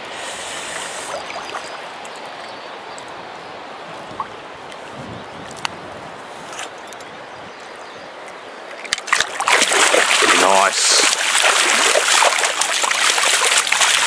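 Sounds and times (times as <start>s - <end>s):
stream running over stones: 0.0s - 7.1s, 7.7s - 14.0s.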